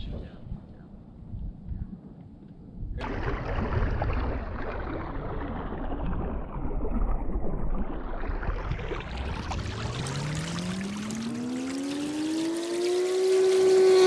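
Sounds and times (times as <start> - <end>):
wind noise: 0.0 - 10.2
water rushing: 3.0 - 14.0.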